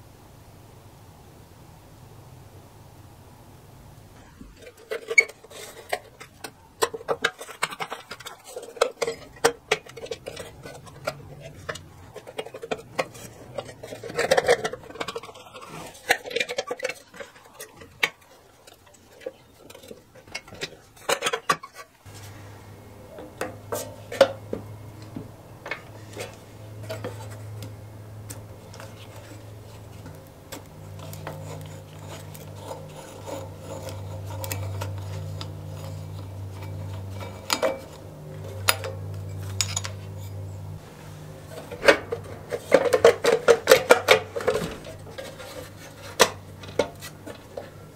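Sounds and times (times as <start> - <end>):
steady low hum: 0.0 - 47.9
metal clinks and scrapes: 4.2 - 47.9.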